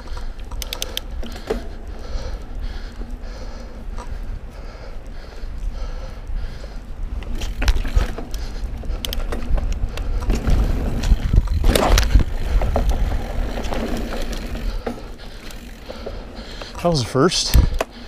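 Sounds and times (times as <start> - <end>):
bike rattling and knocking: 0.0 - 4.3, 7.2 - 18.0
wind rumble on microphone: 5.6 - 14.8.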